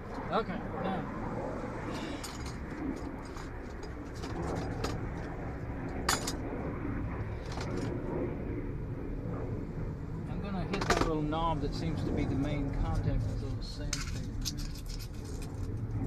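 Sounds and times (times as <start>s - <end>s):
small metal parts clicking: 13.9s - 15.7s.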